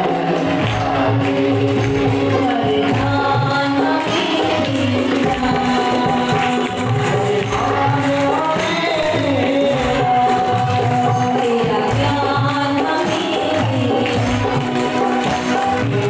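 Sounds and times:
hand percussion: 0.0 - 16.0
instrumental accompaniment: 0.0 - 16.0
woman singing into microphone: 0.0 - 16.0.

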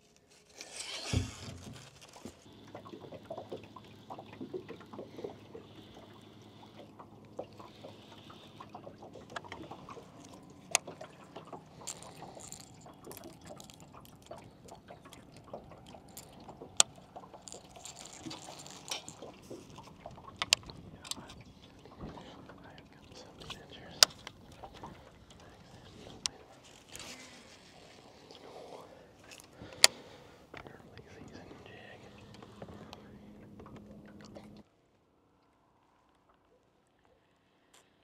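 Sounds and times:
waves lapping against boat hull: 0.0 - 34.8
faint low hum: 1.2 - 38.0
fishing reel clicks: 16.1 - 19.2.

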